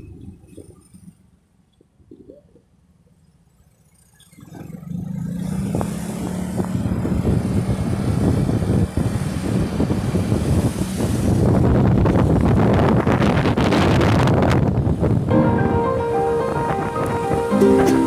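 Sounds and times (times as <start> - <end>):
motorcycle engine accelerating: 4.5 - 10.7
wind on microphone: 5.6 - 15.3.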